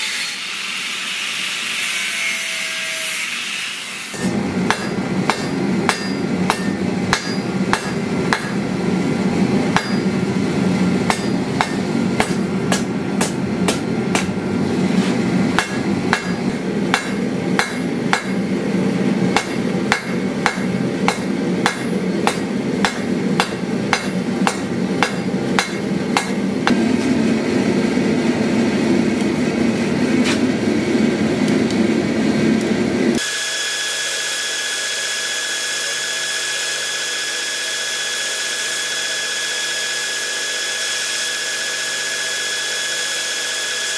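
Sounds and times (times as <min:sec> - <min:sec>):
hammer striking steel on anvil: 0:04.1 - 0:08.7, 0:09.7 - 0:10.2, 0:11.0 - 0:18.6, 0:19.3 - 0:26.9
belt grinder running: 0:33.2 - 0:43.9.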